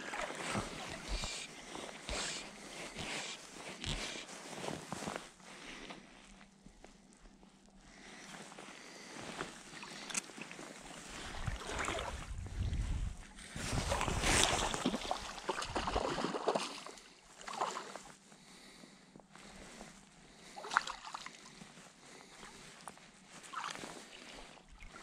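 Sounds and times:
water splashing and sloshing: 0.0s - 5.1s, 9.2s - 18.2s, 20.4s - 21.8s, 23.3s - 25.0s.

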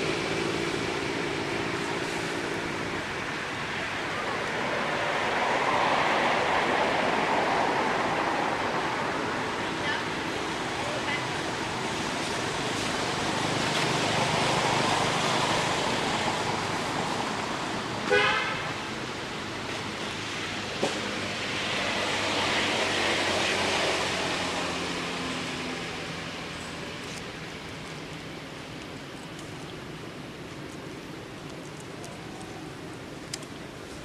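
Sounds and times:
road traffic: 0.0s - 34.0s.

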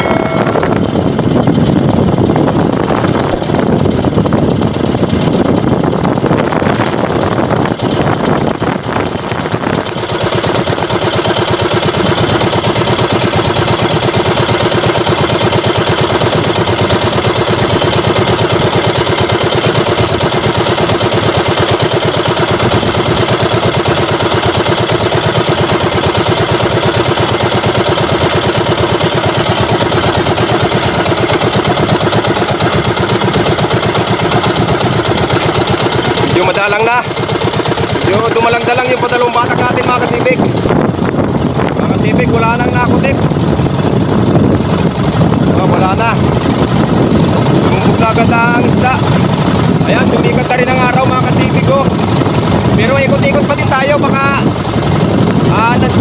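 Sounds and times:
rush of wind and water: 0.0s - 56.0s
small boat engine running: 0.0s - 56.0s.

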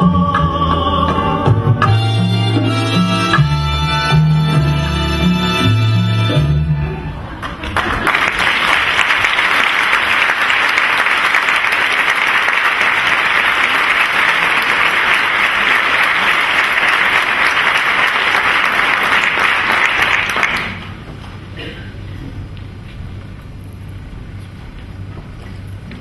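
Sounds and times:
stage music: 0.0s - 21.1s
audience applauding: 7.4s - 21.0s.

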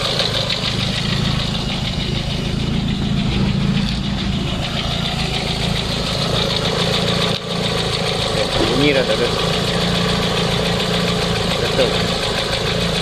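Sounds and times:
alternator bearing rough running: 0.0s - 13.0s
car engine idling: 0.0s - 13.0s.

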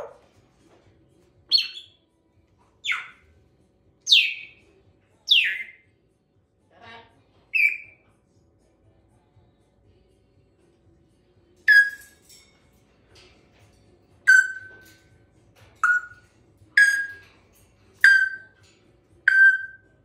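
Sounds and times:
parrot whistled calls: 2.8s - 3.2s, 7.6s - 8.0s, 11.7s - 12.1s, 14.3s - 14.8s, 15.8s - 16.2s, 16.8s - 17.2s, 18.0s - 18.6s, 19.3s - 19.9s.

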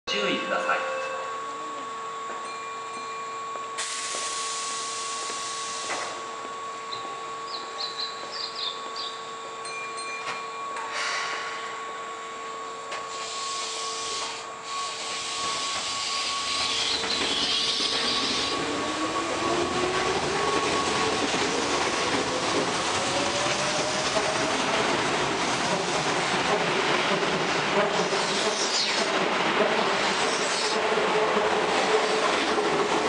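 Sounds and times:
electric train motor whine: 0.1s - 33.0s
wheel and rail noise: 14.0s - 33.0s.

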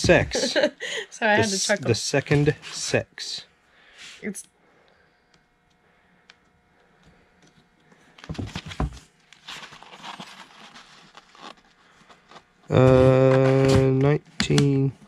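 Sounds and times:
book pages rustling: 8.1s - 13.8s
book handling thumps: 8.2s - 10.7s, 12.7s - 14.7s.

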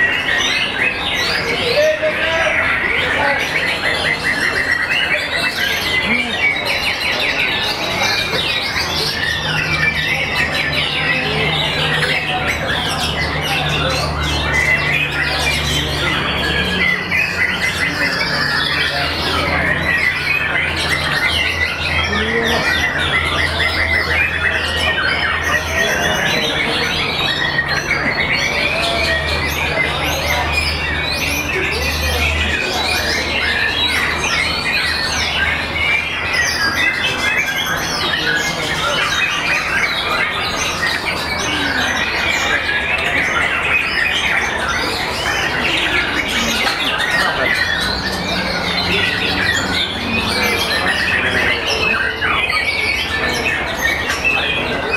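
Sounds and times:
birds whistling and calling: 0.0s - 54.9s.

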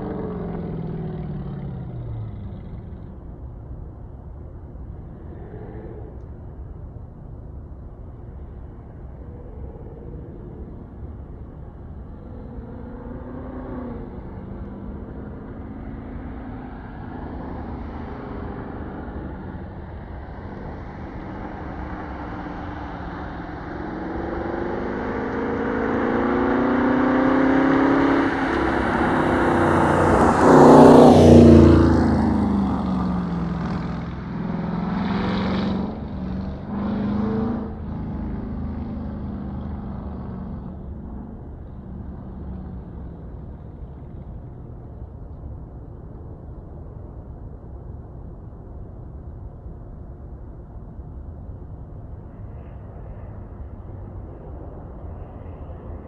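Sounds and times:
car exhaust passing by: 10.3s - 45.2s.

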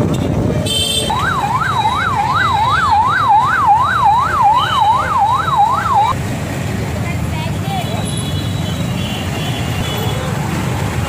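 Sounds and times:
street traffic noise: 0.0s - 11.0s
car horn honk: 0.6s - 1.3s
police siren yelping: 1.1s - 6.2s.

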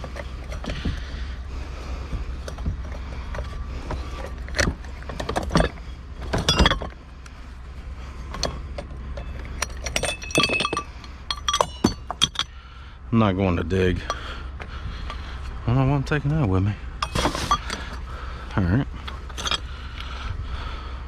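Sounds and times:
steady low hum: 0.0s - 21.0s
metal and glass scrap clattering: 5.2s - 7.0s, 9.2s - 12.6s, 17.0s - 17.9s.

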